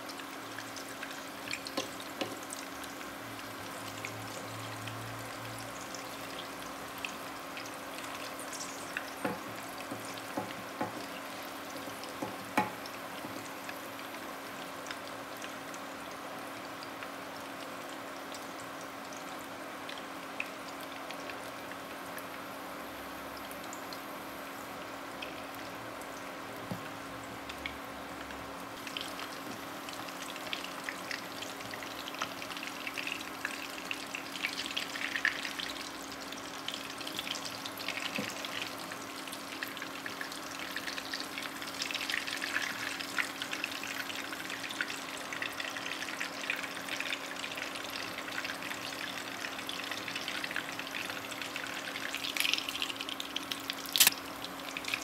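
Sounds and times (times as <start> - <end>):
food sizzling in oil: 0.0 - 19.1
oil popping and crackling: 48.2 - 55.0.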